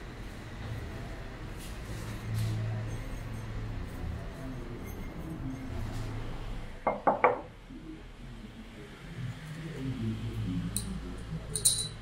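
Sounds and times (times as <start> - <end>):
ceramic knocks on tabletop: 6.9 - 7.5.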